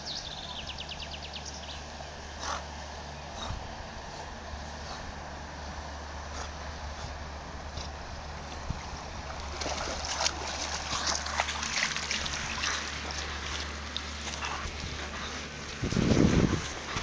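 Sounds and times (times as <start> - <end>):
dog splashing in water: 9.2 - 17.0.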